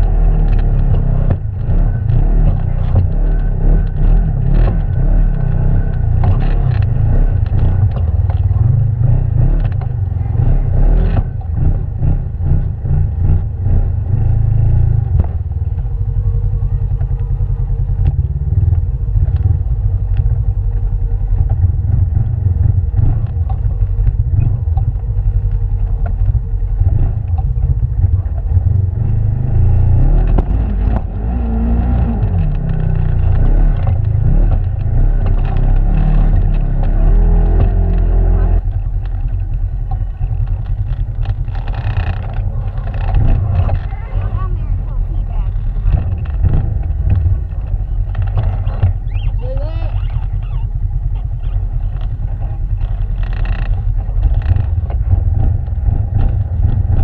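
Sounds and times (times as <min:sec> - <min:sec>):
utility vehicle engine running: 0:00.0 - 0:57.0
knocks and rattles over rocks: 0:31.9 - 0:49.3, 0:51.9 - 0:57.0.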